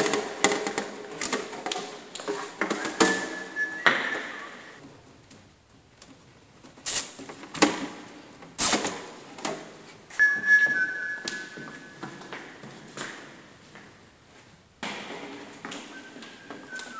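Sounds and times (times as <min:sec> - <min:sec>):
knocks clatters and scrapes: 0:00.0 - 0:05.2
brief ringing tone: 0:10.2 - 0:12.0.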